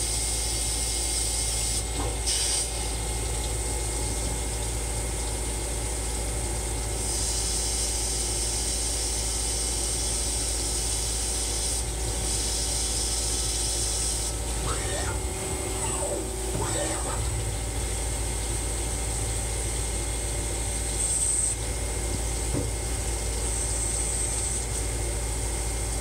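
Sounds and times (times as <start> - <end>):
lathe running hum: 13.5 - 25.9.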